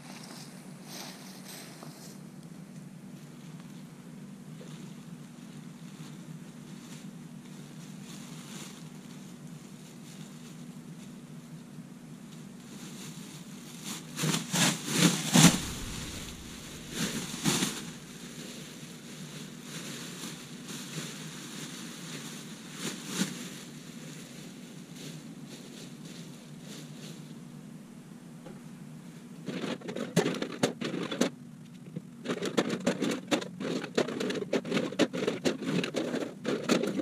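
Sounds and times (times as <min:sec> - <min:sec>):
steady background noise: 0:00.0 - 0:37.0
plastic bag rustling: 0:03.0 - 0:11.5, 0:12.3 - 0:27.4.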